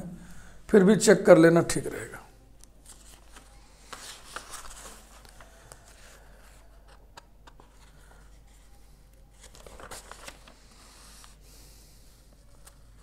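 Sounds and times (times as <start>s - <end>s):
soft rustle: 2.8s - 6.6s.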